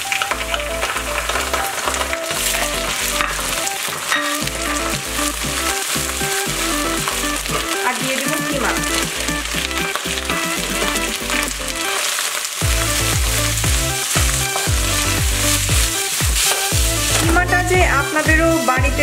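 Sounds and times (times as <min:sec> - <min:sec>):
background music: 0:00.0 - 0:19.0
onions and mince sizzling in oil: 0:00.0 - 0:19.0
wooden spatula stirring: 0:00.0 - 0:19.0
pulsing bass beat: 0:04.4 - 0:07.7, 0:12.6 - 0:19.0.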